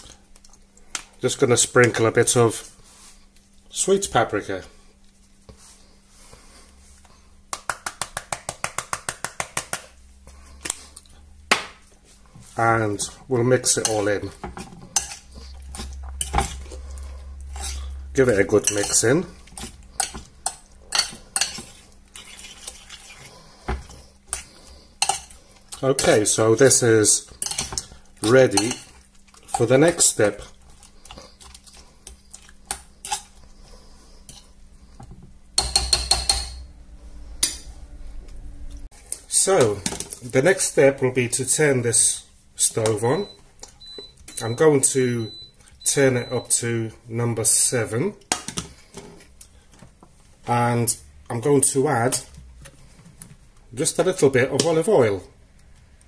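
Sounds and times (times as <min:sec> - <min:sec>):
fork stirring in glass bowl: 0:13.7 - 0:26.3.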